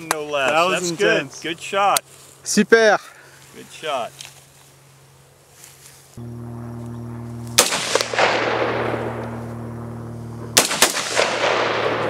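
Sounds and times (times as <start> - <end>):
rifle shots: 7.5 - 9.3, 10.5 - 12.0
gunshot echo rolling off hillside: 7.5 - 9.4, 10.5 - 12.0.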